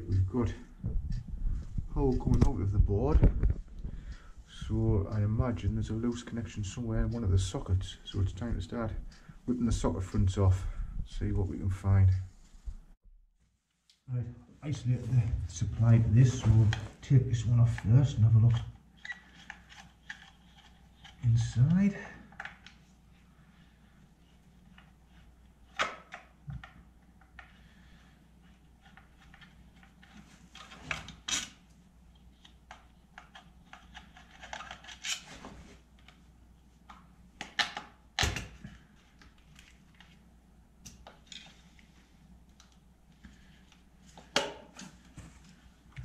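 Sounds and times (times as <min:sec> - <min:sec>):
screwdriver clicks and scrapes: 0:32.4 - 0:35.3.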